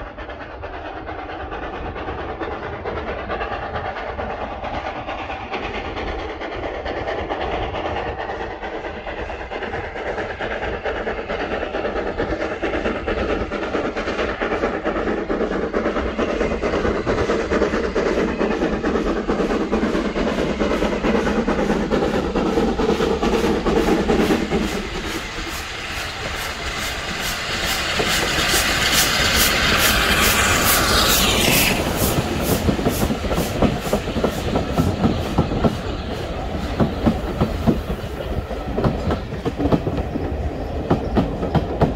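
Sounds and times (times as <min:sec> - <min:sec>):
hiss of steam: 0:00.0 - 0:41.9
steam locomotive working: 0:00.0 - 0:41.9.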